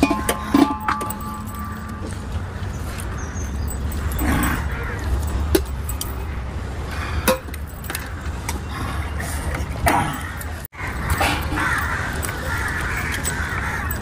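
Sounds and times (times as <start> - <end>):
steel plates and spoon clinking: 0.0 - 2.1.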